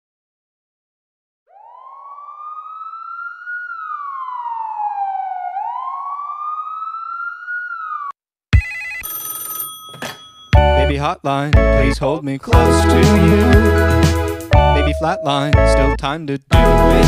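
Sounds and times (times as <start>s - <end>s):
wailing siren: 1.5s - 8.2s, 12.9s - 15.8s.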